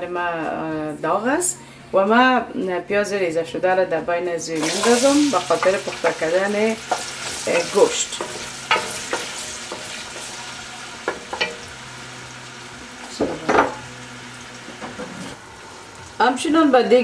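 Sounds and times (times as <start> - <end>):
onion sizzling in hot oil: 4.6 - 17.0.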